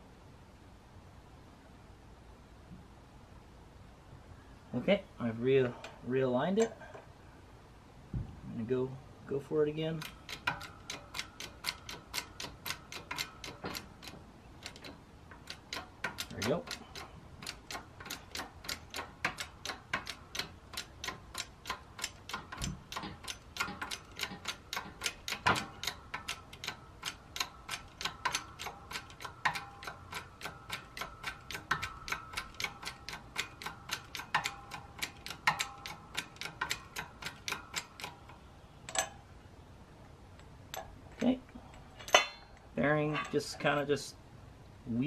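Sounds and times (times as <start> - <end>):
hydraulic press pump clicking: 10.0 - 39.2.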